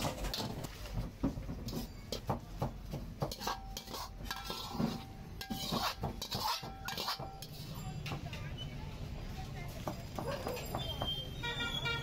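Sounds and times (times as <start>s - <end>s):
ladle scraping metal wok: 0.0s - 2.3s, 2.9s - 8.7s.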